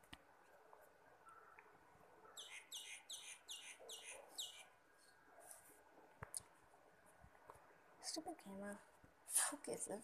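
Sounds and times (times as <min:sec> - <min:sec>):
bird chirping: 0:01.2 - 0:05.3.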